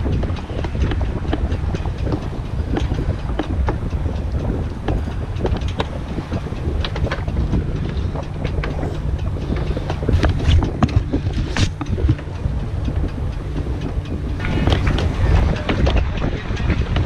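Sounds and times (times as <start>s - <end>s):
steady rumble: 0.0s - 17.0s
wind buffeting microphone: 0.0s - 17.0s.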